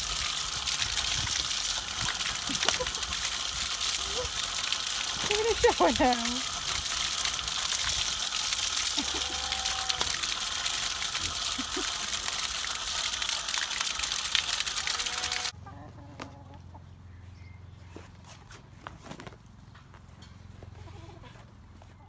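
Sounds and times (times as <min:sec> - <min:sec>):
liquid splashing onto mud: 0:00.0 - 0:15.5.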